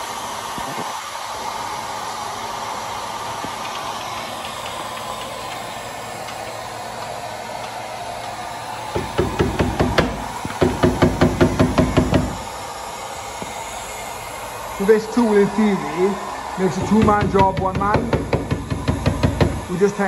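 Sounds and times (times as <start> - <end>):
sharp metallic knocks: 16.8 - 19.6.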